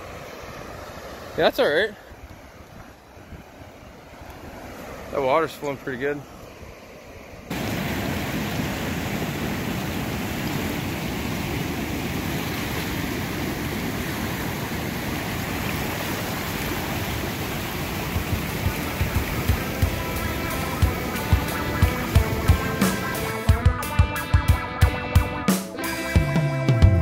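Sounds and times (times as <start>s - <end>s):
whitewater rapids rushing: 7.4s - 23.6s.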